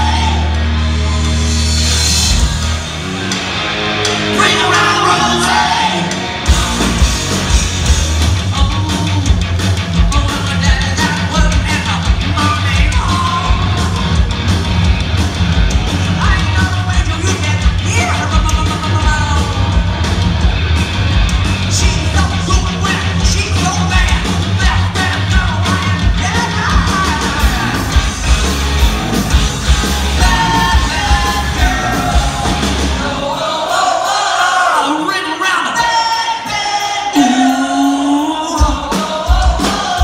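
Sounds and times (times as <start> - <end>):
hard-hitting drum beat: 0.0 - 34.4, 36.4 - 40.0
live hard rock band: 0.0 - 40.0
person singing: 30.2 - 33.9, 35.8 - 40.0.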